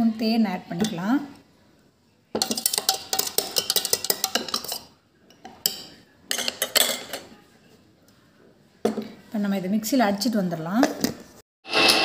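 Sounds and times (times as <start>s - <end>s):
metal spoon tapping steel jar: 2.4s - 4.8s.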